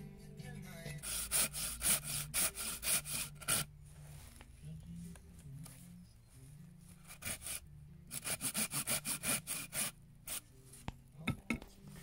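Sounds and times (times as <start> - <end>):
hand saw rasping through wood: 1.0 - 3.7, 7.1 - 9.9.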